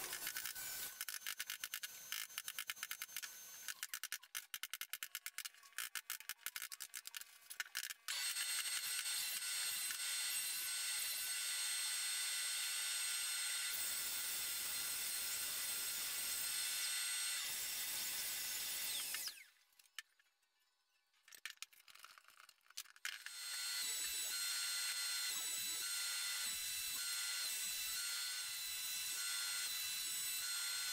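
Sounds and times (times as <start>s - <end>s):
power tool whining: 14.6s - 19.6s, 23.2s - 30.9s.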